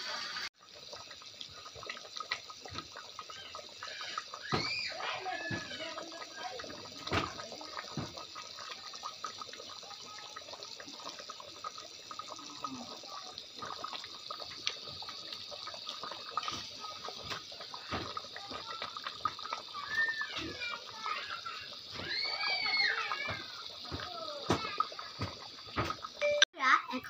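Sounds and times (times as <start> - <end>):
thick curry bubbling in a pot: 0.5 - 26.2.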